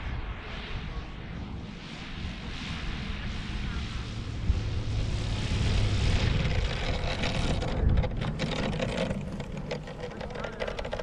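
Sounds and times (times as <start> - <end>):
low uneven rumble: 0.0 - 11.0
model aeroplane motor drone: 2.4 - 11.0.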